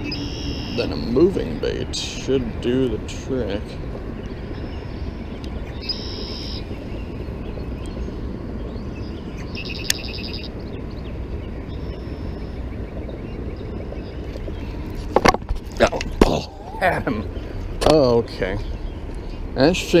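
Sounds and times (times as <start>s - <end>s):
high bird trills: 0.0s - 1.8s, 4.2s - 15.1s
outdoor background noise: 0.0s - 20.0s.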